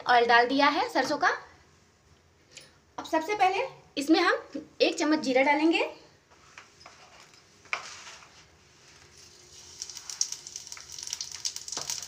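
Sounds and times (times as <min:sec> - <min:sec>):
seeds sizzling in hot oil: 0:07.7 - 0:12.0.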